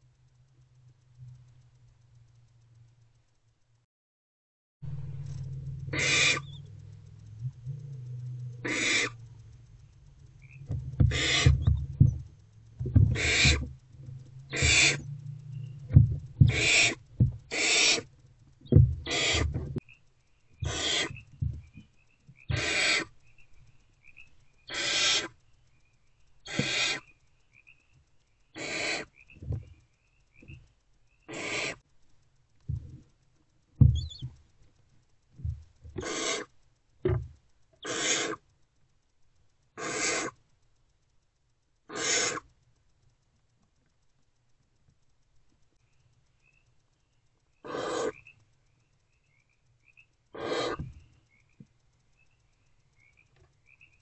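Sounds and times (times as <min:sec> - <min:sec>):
low thuds: 0:04.8 - 0:17.5, 0:18.6 - 0:19.8, 0:20.6 - 0:22.7, 0:32.6 - 0:33.1, 0:33.7 - 0:34.4
owlets rasping begging calls: 0:05.8 - 0:06.9, 0:08.6 - 0:09.3, 0:10.4 - 0:12.2, 0:13.0 - 0:13.8, 0:14.4 - 0:15.8, 0:16.4 - 0:19.6, 0:20.6 - 0:21.3, 0:22.4 - 0:23.2, 0:24.1 - 0:25.4, 0:26.5 - 0:27.1, 0:28.6 - 0:29.4, 0:31.3 - 0:31.8, 0:34.0 - 0:34.3, 0:36.0 - 0:36.5, 0:37.8 - 0:38.4, 0:39.8 - 0:40.4, 0:41.9 - 0:42.4, 0:47.6 - 0:48.2, 0:50.4 - 0:51.0.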